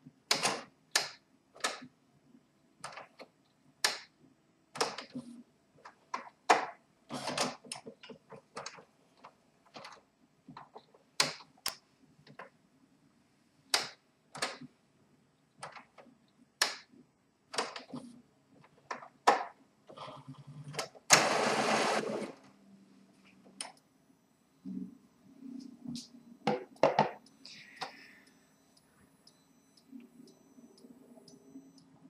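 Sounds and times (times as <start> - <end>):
printer whirr: 20.8 - 22.6.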